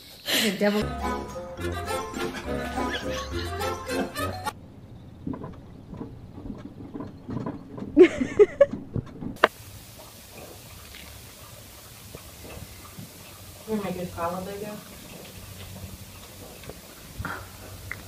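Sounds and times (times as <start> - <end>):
person laughing: 1.6 - 4.5, 8.0 - 8.8
faint steady hiss: 9.4 - 18.0.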